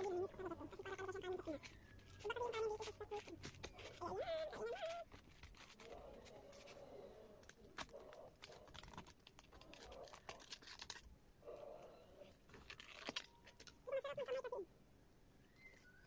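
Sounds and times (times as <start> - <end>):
food wrapping crinkling: 7.4 - 11.2, 12.4 - 13.8.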